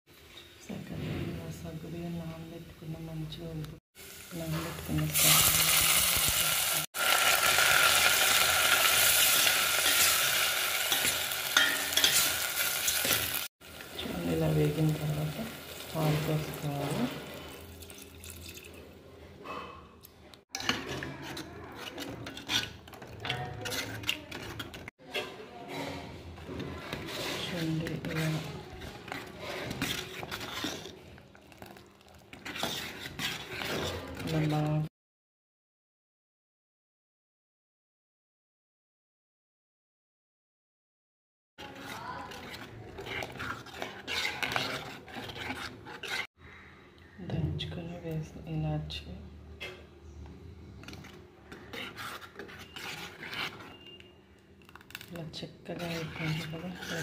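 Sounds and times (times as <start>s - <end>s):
spoon clinking and scraping pot: 4.4s - 18.8s, 20.5s - 34.8s, 41.6s - 46.4s, 49.5s - 57.0s.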